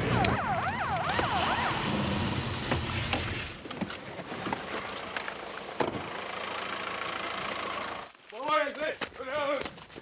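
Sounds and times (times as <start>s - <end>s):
footsteps: 8.0s - 10.0s.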